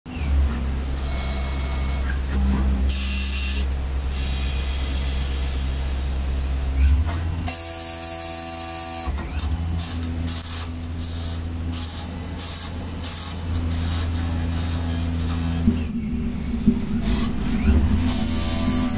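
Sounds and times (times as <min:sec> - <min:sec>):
lathe motor hum: 0:15.1 - 0:18.9.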